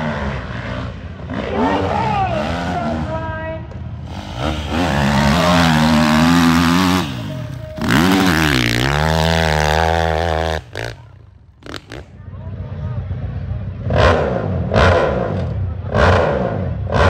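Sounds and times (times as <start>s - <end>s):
dirt bike engine revving: 0.0s - 3.3s, 4.0s - 12.1s.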